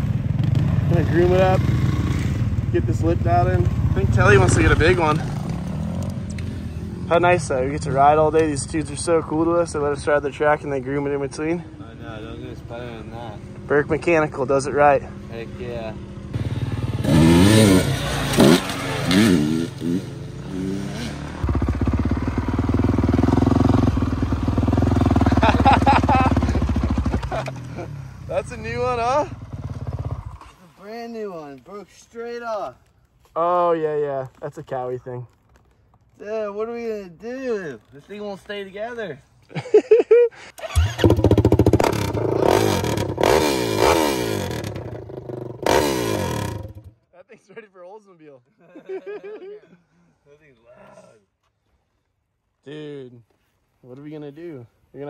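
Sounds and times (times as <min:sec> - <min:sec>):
motocross bike engines revving: 0:00.0 - 0:30.6, 0:40.5 - 0:47.0.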